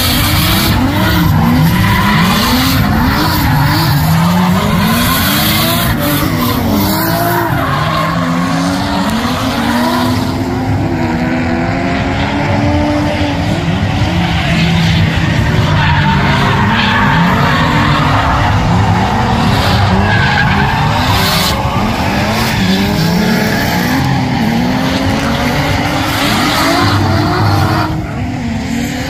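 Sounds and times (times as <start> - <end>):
tyres screeching on asphalt: 0.0 - 10.7, 13.6 - 28.8
car engines revving: 0.0 - 29.0.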